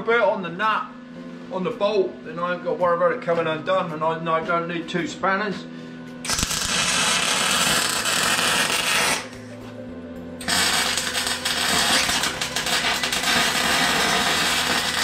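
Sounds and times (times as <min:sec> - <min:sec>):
welding arc crackling: 0:06.3 - 0:09.4, 0:10.4 - 0:15.0.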